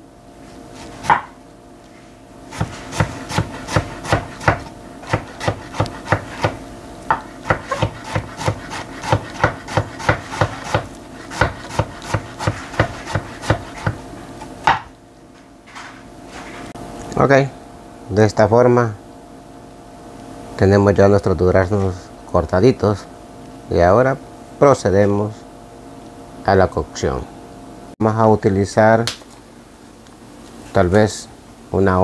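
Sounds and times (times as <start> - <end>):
knife knocking on wooden board: 3.8 - 14.0.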